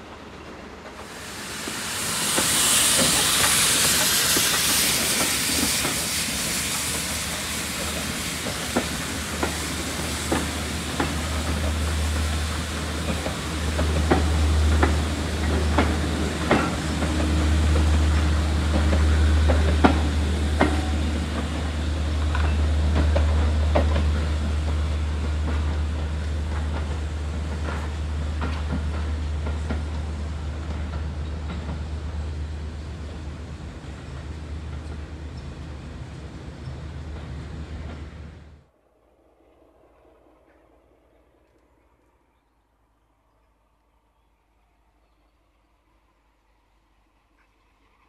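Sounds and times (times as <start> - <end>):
train low rumble: 0.0 - 48.0
coach wheels clicking over rail joints: 0.7 - 32.3.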